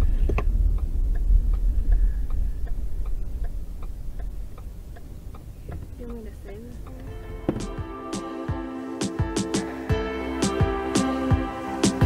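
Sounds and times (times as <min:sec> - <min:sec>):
car indicator ticking: 0:00.0 - 0:08.0
car rolling rumble: 0:00.0 - 0:08.1.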